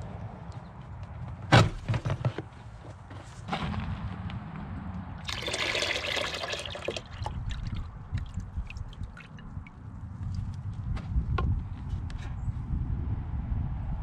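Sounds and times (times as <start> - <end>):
coolant pouring into drain pan: 5.2 - 9.5
liquid dribbling and dripping: 5.2 - 10.5.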